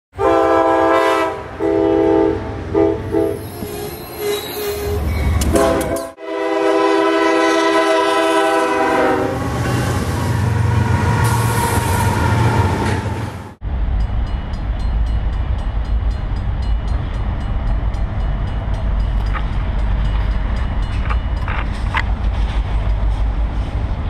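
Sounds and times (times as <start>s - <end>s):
locomotive air horn blasts: 0.2s - 3.6s, 4.9s - 12.1s
locomotive rumbling past: 0.2s - 24.0s.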